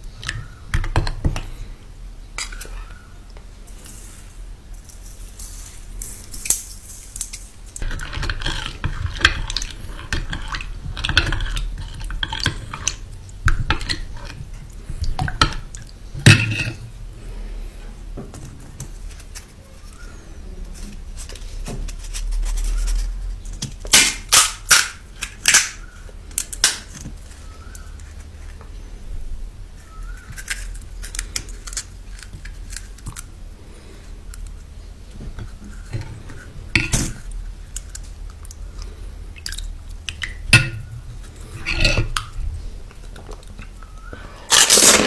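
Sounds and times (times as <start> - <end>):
fried shells cracking: 6.0 - 16.8, 23.6 - 27.9, 29.8 - 33.3, 41.9 - 45.0
crisp shells being handled: 29.8 - 38.7, 39.5 - 45.0
metal spoon scraping glass bowl: 40.8 - 42.2.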